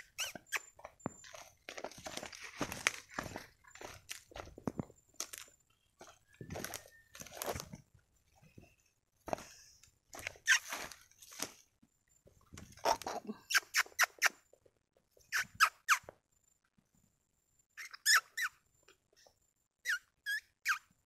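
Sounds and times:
macaques giving squeaky calls: 0:00.0 - 0:00.7, 0:10.4 - 0:10.7, 0:12.8 - 0:14.3, 0:17.8 - 0:18.5, 0:19.8 - 0:20.8.

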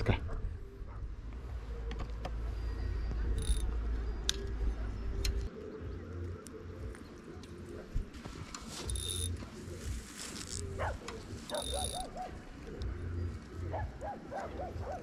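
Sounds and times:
wind rumble on microphone: 0:00.0 - 0:01.7
animal calling repeated notes: 0:11.5 - 0:12.3.

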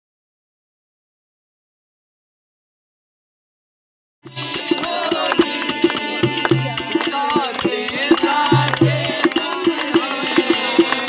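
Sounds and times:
dholak drum strokes: 0:04.3 - 0:11.0
harmonium: 0:04.3 - 0:11.0
jingling percussion: 0:04.3 - 0:11.0
person singing: 0:04.3 - 0:11.0.

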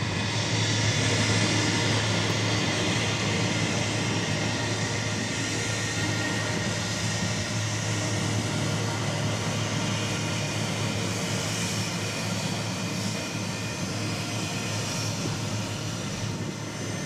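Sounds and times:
jet engines taxiing: 0:00.0 - 0:17.0.

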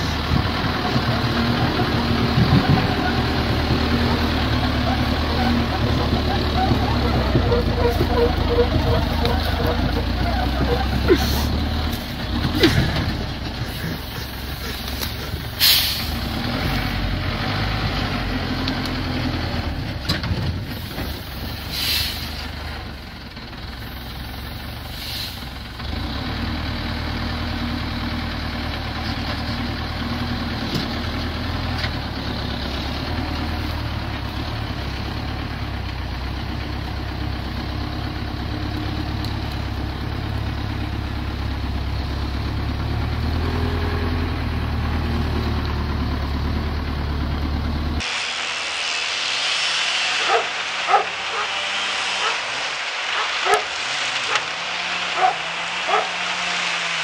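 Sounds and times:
large engine running: 0:00.0 - 0:57.0
short hissing bursts: 0:13.7 - 0:16.2, 0:20.8 - 0:22.4, 0:48.0 - 0:57.0.

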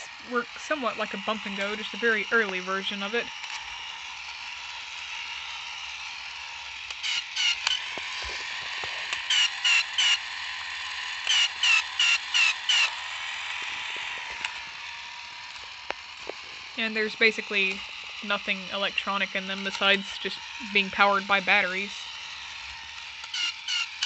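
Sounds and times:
toy robot motor whirring: 0:00.0 - 0:24.0
toy robot chirps: 0:05.1 - 0:24.0.

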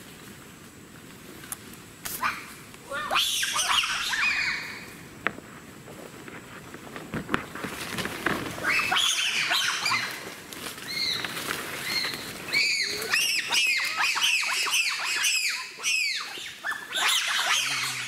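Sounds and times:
bonobos giving high-pitched calls: 0:08.6 - 0:10.2, 0:11.8 - 0:18.0.

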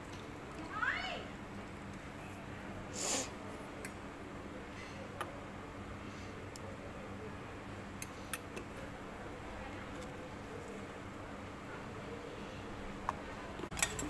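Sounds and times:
quiet steady hum: 0:00.0 - 0:14.0.

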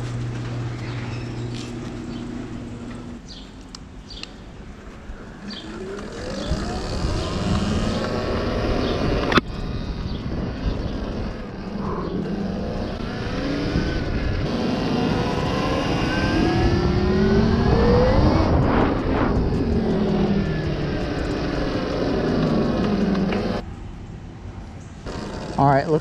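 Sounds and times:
low rumble: 0:05.4 - 0:23.6
electric motor whine: 0:05.5 - 0:09.4, 0:11.8 - 0:23.6.

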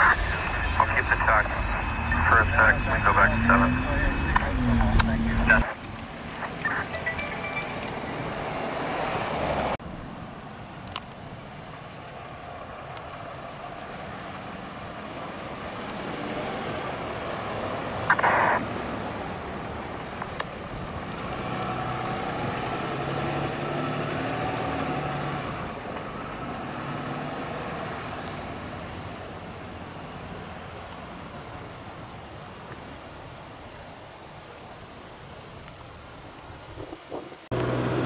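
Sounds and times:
truck engine driving away: 0:00.0 - 0:06.6, 0:15.7 - 0:28.9, 0:37.5 - 0:38.0.

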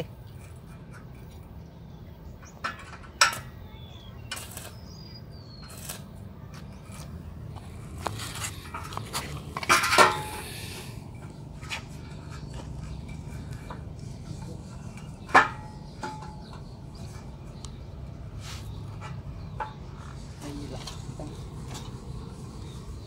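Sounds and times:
metal clanks and knocks: 0:02.4 - 0:03.6, 0:08.5 - 0:10.4, 0:11.2 - 0:17.5, 0:18.9 - 0:22.0.

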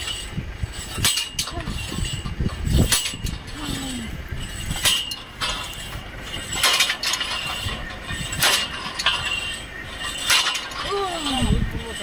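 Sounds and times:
sharp metallic clanks: 0:00.0 - 0:12.0.

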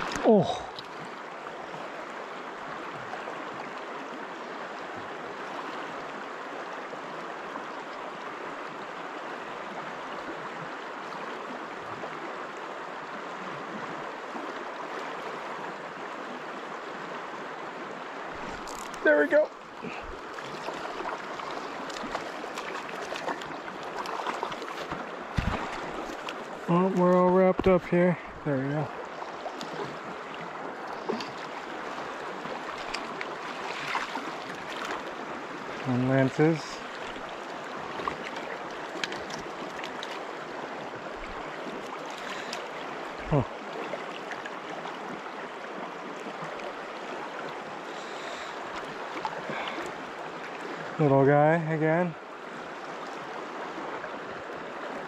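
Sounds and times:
river running over rocks: 0:00.0 - 0:55.0
low thump: 0:25.3 - 0:25.8.

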